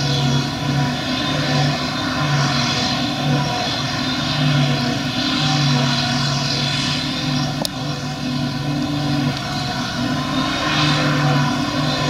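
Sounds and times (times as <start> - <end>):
forage harvester machine drone: 0.0 - 12.0
high machine whine: 0.0 - 12.0
low pulsing hum: 0.0 - 12.0.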